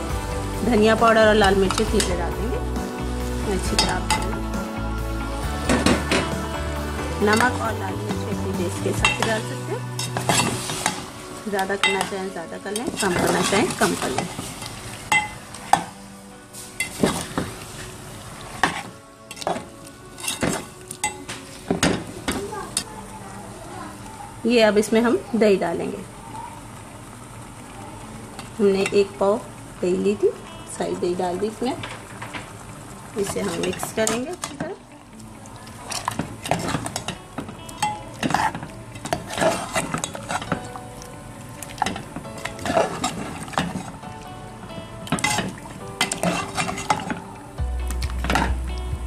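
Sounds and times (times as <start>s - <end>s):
frying sizzle: 0.0s - 49.0s
ladle scraping metal pot: 8.3s - 16.0s, 18.6s - 22.0s, 35.8s - 40.8s, 41.7s - 44.0s, 45.0s - 47.2s.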